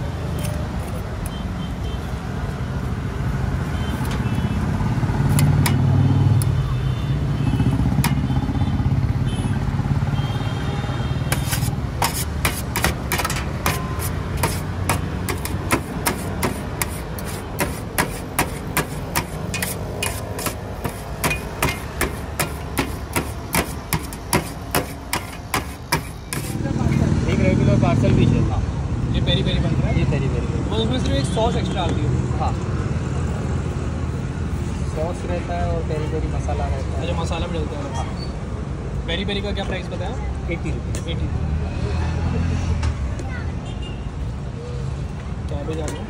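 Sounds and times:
road traffic rumbling: 0.0 - 46.0
metal spatula chopping on steel tray: 5.2 - 6.0, 7.9 - 8.4, 11.3 - 26.7.

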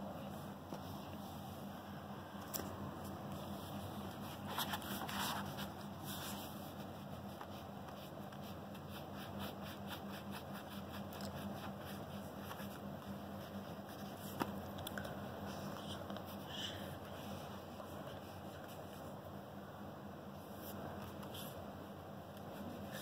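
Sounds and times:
pencil scratching on paper: 3.6 - 14.4.

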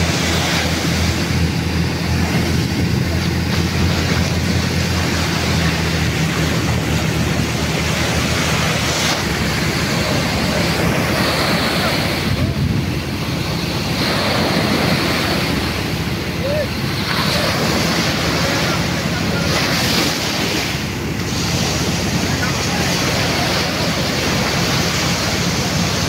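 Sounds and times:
surf breaking: 0.0 - 26.0
wind buffeting microphone: 0.0 - 26.0.

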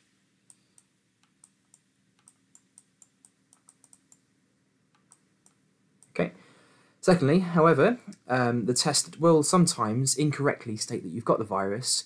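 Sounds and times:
pen stylus tapping and clicking: 1.2 - 4.2.

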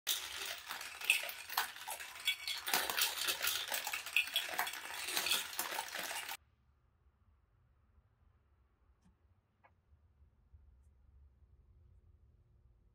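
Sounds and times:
marbles rattling through plastic tubes: 0.0 - 6.4.

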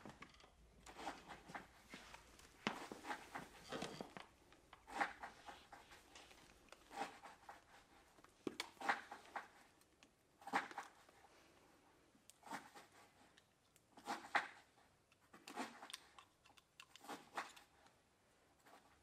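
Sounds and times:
rustling and shuffling of dancer: 0.8 - 9.8.

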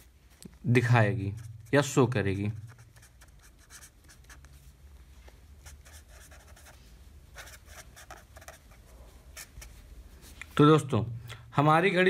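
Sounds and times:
felt-tip pen scratching on paper: 2.5 - 4.4, 5.7 - 6.8.

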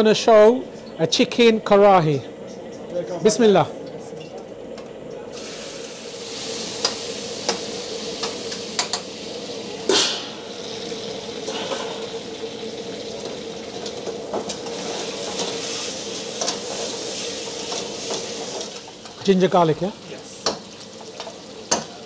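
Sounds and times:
steady hum: 0.0 - 17.4
hot oil sizzling: 5.3 - 22.0.

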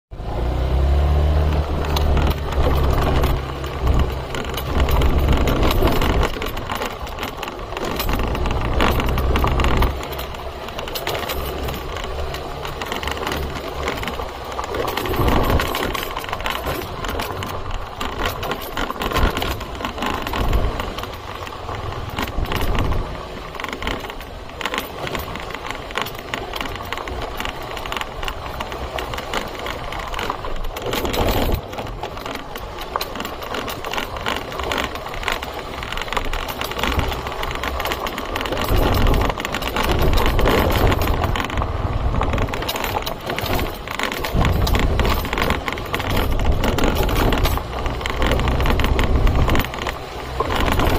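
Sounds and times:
bike rattling over bumps: 0.1 - 50.9
motorbike engine running: 0.1 - 50.9.

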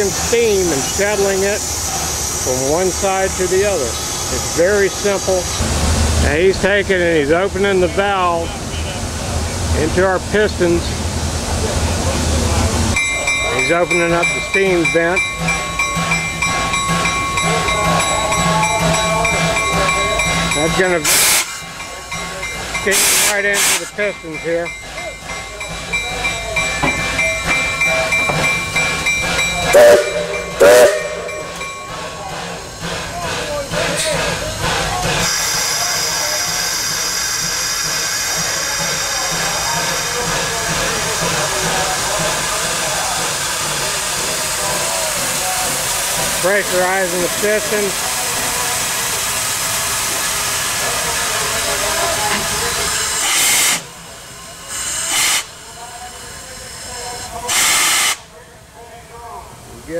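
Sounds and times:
steam locomotive hissing: 0.0 - 59.9.

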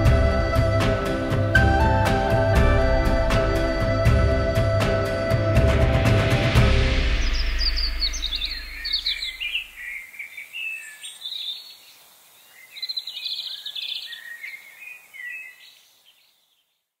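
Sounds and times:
songbird chirping and trilling: 6.5 - 16.9.

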